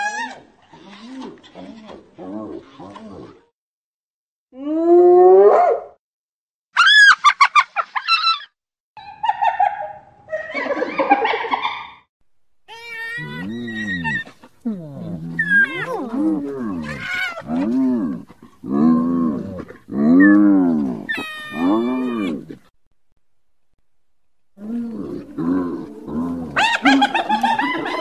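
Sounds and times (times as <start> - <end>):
hyena calls and giggles: 25.8 - 28.0.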